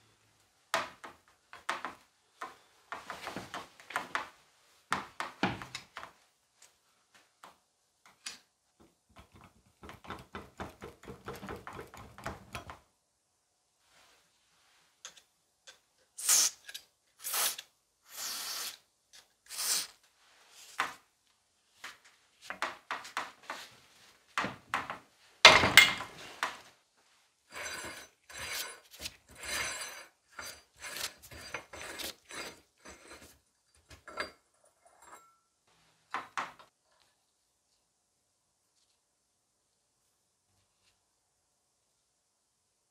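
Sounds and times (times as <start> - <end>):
aerosol spray hissing: 17.2 - 18.8, 19.5 - 19.9
gritty scraping of threads: 27.4 - 35.3.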